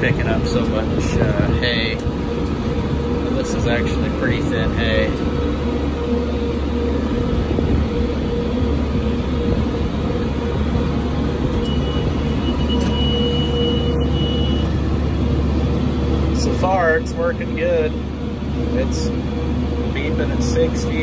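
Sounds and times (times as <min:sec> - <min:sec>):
tractor engine running: 0:00.0 - 0:21.0
high steady alarm beep: 0:11.6 - 0:14.9.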